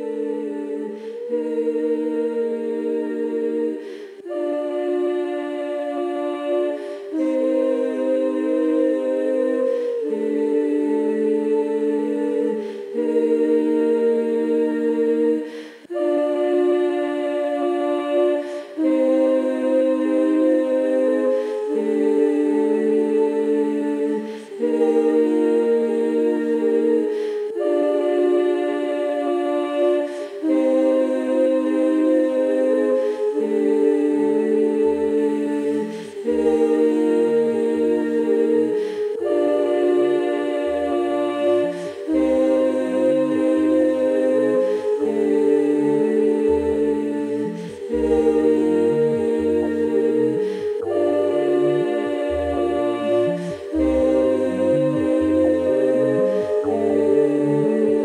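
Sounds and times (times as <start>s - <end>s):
wavering sung line: 30.4s - 58.0s
woman humming sustained chords: 39.2s - 58.0s.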